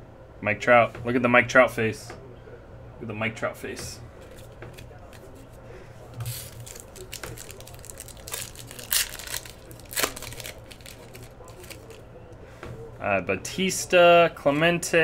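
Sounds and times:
low steady hum: 0.0 - 15.0
foil wrapper crinkling and tearing: 6.2 - 12.0.

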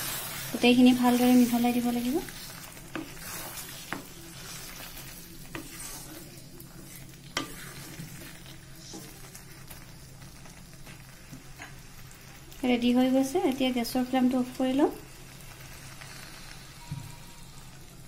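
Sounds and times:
spatula stirring curry: 0.0 - 12.3
low sizzle: 0.0 - 18.0.

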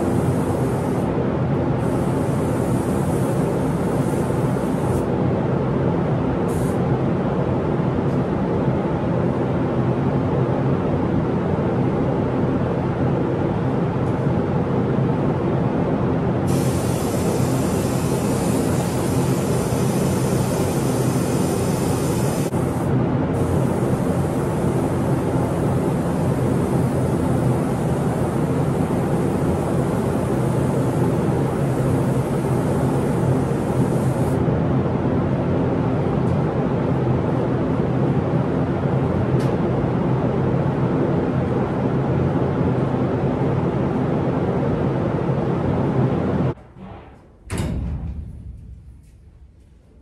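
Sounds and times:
paint spray gun hissing: 0.0 - 1.1, 1.8 - 5.1, 6.5 - 6.8, 16.5 - 34.4
loud knock: 46.6 - 49.0.

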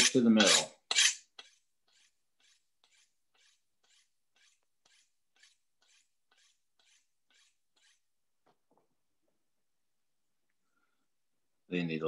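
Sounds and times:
knife scraping on honing steel: 0.0 - 8.1.

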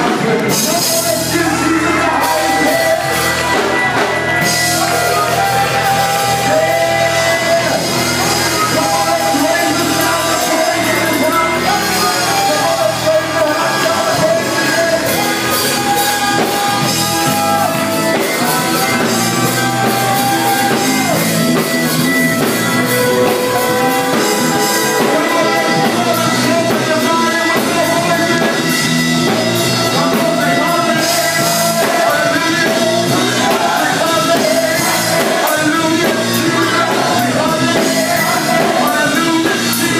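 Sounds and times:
gospel group singing: 0.0 - 39.9
instrumental accompaniment: 0.0 - 39.9.

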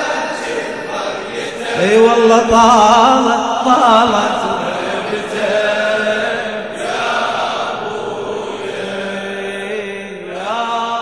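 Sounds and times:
men chanting a lament: 0.0 - 11.0.

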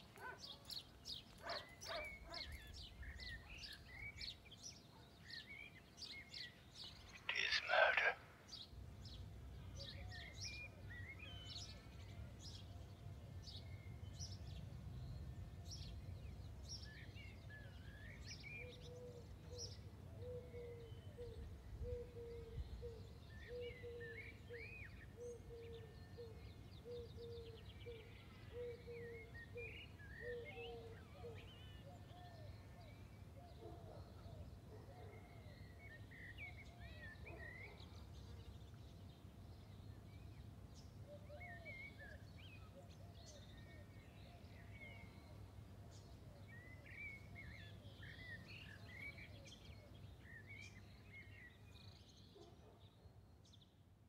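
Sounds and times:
small birds chirping and trilling: 0.0 - 12.8.

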